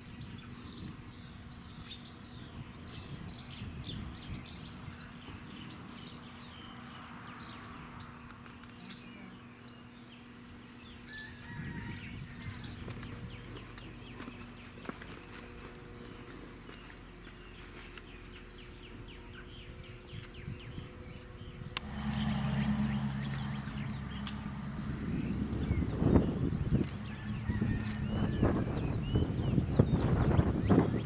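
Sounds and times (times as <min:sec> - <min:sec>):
wind rumble: 0:00.0 - 0:05.8, 0:19.7 - 0:31.0
small birds chirping: 0:00.0 - 0:31.0
low hum: 0:12.2 - 0:31.0.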